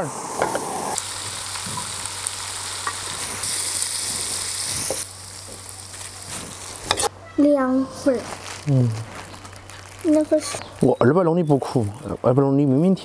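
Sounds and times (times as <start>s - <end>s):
food sizzling in a wok: 0.0s - 7.1s.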